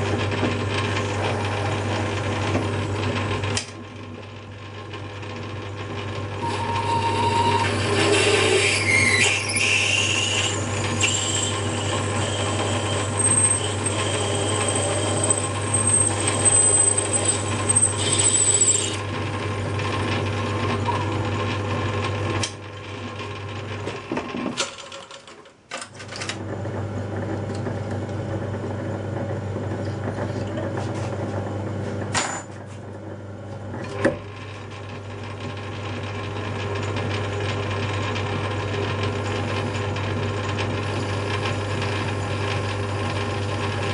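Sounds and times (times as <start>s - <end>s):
lathe motor hum: 0.0s - 23.6s, 34.1s - 43.9s
drill squealing in brass: 6.4s - 19.0s.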